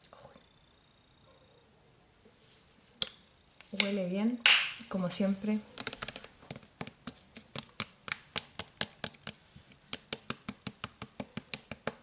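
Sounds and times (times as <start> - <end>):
fingernails tapping plastic bottle: 5.7 - 12.0.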